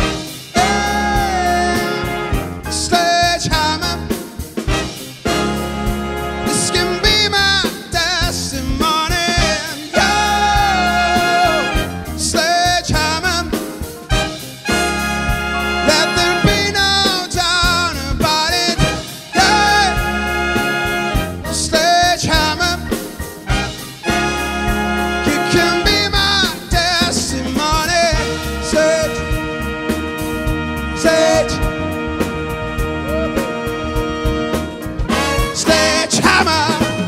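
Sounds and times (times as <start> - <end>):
big band music: 0.0 - 37.0
man singing with vibrato: 0.3 - 4.6, 6.4 - 14.0, 15.7 - 29.6, 30.8 - 31.9, 35.1 - 37.0.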